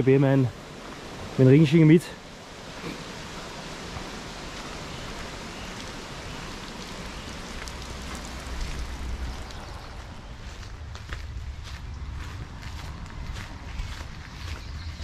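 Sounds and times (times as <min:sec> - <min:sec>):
creek water rushing: 0:00.0 - 0:12.2
low rumble: 0:08.0 - 0:15.0.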